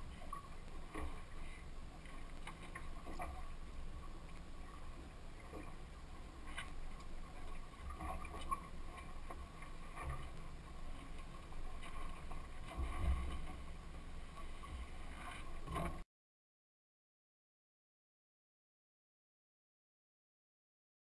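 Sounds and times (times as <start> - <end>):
water around hull: 0.0 - 16.1.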